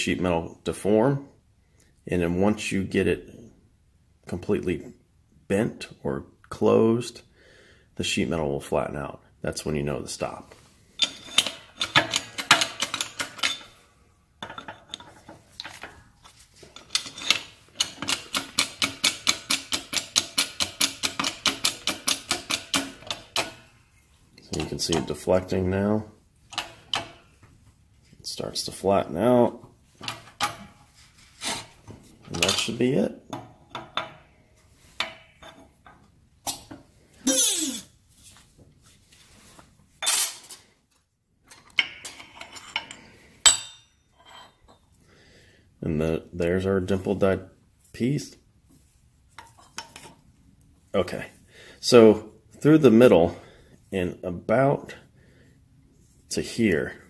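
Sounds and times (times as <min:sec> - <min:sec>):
sharp metal clank: 0:43.4 - 0:44.0.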